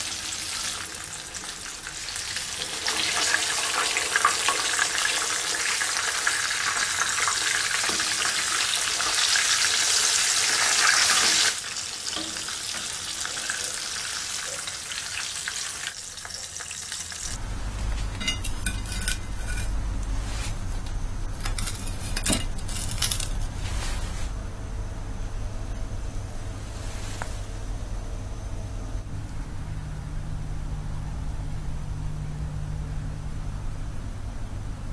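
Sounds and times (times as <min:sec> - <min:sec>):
fish sizzling in hot oil: 0:00.0 - 0:17.4
low hum: 0:17.3 - 0:34.9.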